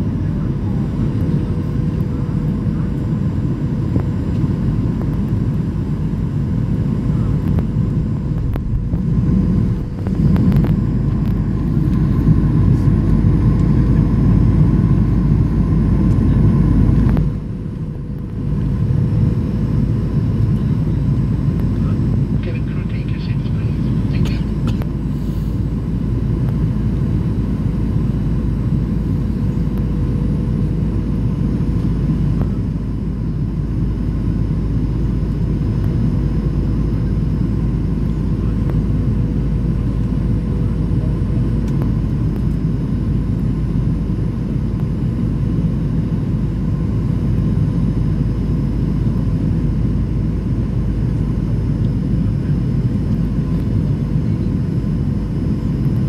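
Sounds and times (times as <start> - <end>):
faint constant hum: 0.0 - 56.0
jet engine and airflow roar: 0.0 - 56.0.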